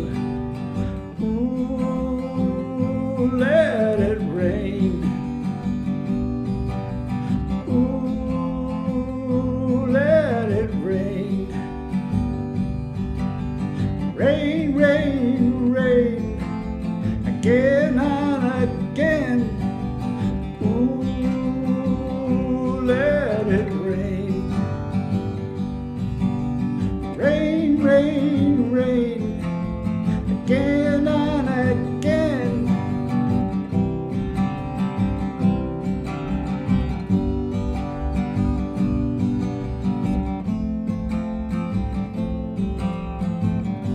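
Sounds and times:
strummed acoustic guitar: 0.0s - 43.9s.

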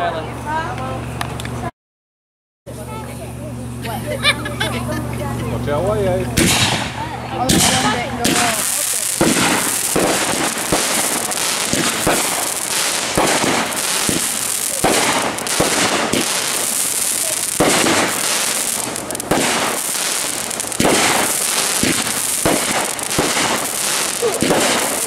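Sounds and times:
crackling hiss of firework stars: 6.4s - 25.0s
firework shells bursting: 6.4s - 25.0s.

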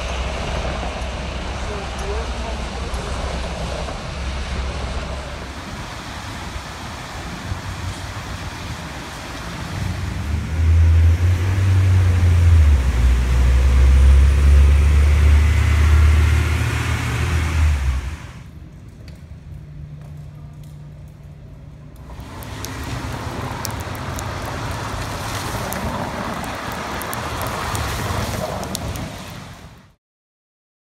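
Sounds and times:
vehicle engine passing: 0.0s - 18.6s, 22.0s - 29.5s
rain-like noise on pavement: 0.0s - 30.0s
traffic on wet street: 0.0s - 30.0s
drip clicks: 21.9s - 27.9s.

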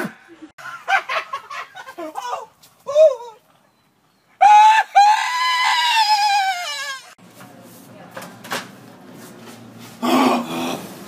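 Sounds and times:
man wailing high-pitched: 2.0s - 3.4s, 4.4s - 7.2s.

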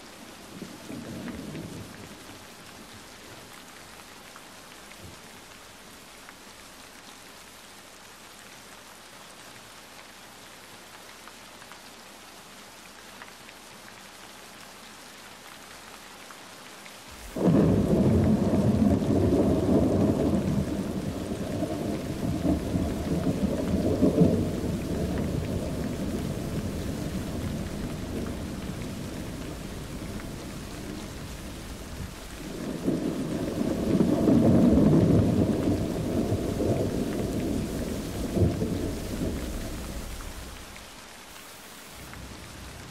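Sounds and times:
steady rain hiss: 0.0s - 42.9s
thunder rumbling: 17.2s - 40.8s.

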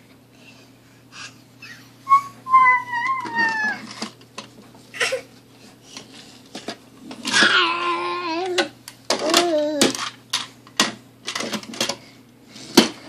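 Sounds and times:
toddler squealing: 1.6s - 3.9s.

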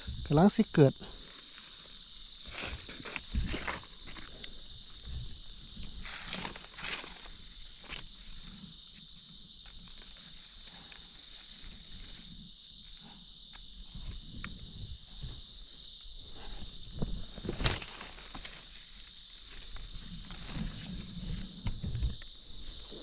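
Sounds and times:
high insect drone: 0.0s - 23.0s
crunch: 2.4s - 12.4s, 16.4s - 23.0s.

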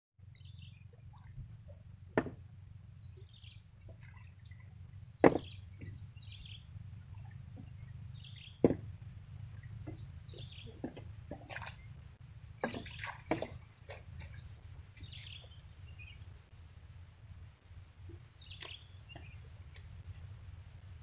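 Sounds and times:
small birds chirping: 0.2s - 21.0s
steady low hum: 0.2s - 21.0s
sharp knocks: 2.1s - 2.4s, 5.2s - 6.0s, 8.6s - 8.9s, 12.6s - 14.0s.

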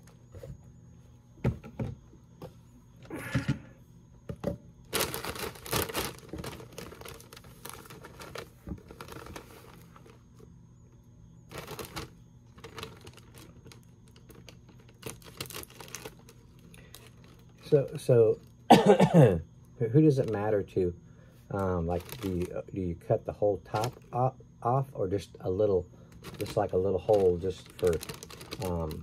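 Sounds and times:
plastic bag crinkling: 4.8s - 10.5s, 11.4s - 18.7s, 21.5s - 22.8s, 23.6s - 24.2s, 26.0s - 29.0s.

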